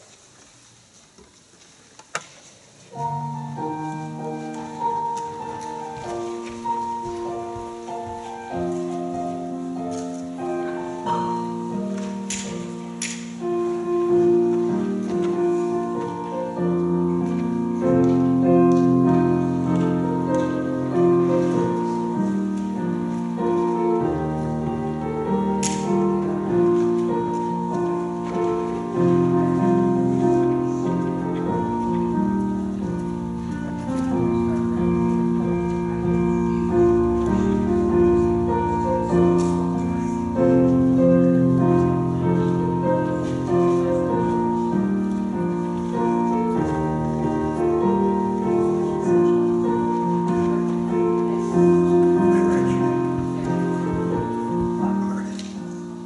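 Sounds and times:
slow keyboard chords: 2.9s - 56.0s
deep bass line: 31.5s - 42.9s.

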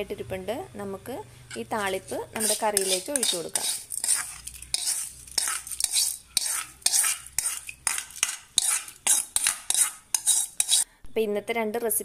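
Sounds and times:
metal spoon scraping metal pan: 1.5s - 10.9s.

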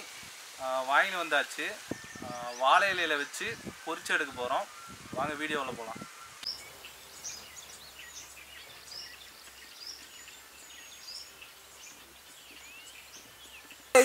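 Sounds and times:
birds chirping: 0.0s - 14.0s
faint steady hiss: 0.0s - 14.0s.

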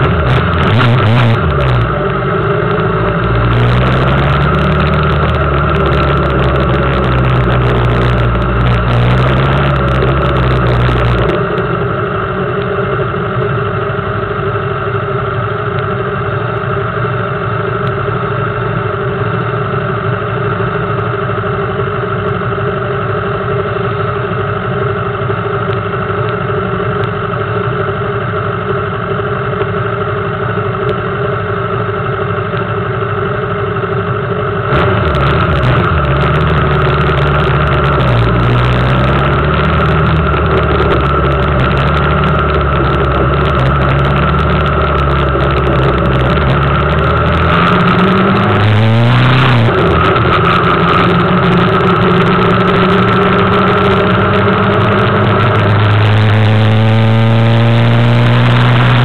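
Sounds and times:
motorcycle engine idling: 1.5s - 34.7s, 35.5s - 47.3s.

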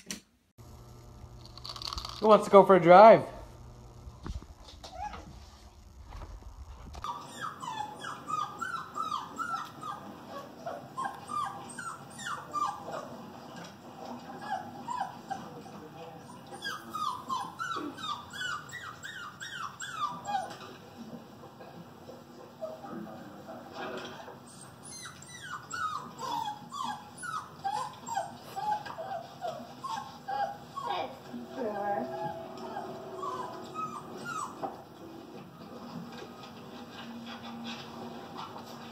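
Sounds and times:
dog whimpering: 4.9s - 5.3s, 7.1s - 13.2s, 14.3s - 20.7s, 24.1s - 34.8s.

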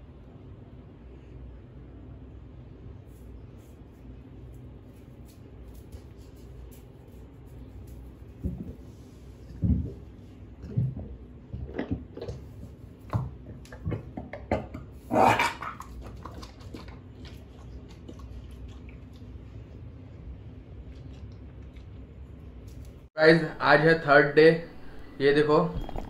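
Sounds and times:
puppy retching: 15.0s - 16.9s, 25.8s - 26.0s.

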